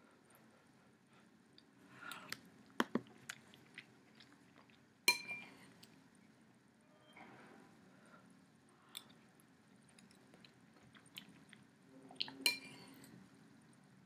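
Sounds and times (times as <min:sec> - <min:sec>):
chewing with wet mouth noises: 0:01.6 - 0:04.9, 0:08.8 - 0:13.2
spoon clinking on bowl: 0:05.1 - 0:05.5.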